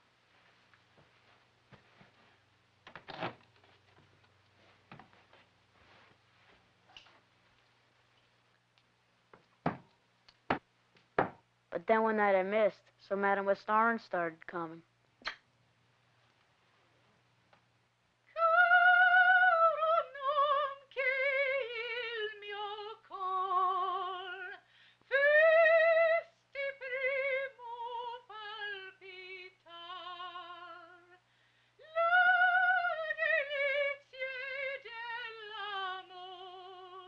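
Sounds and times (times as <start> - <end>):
woman singing operatically: 18.3 - 31.2, 31.8 - 37.0.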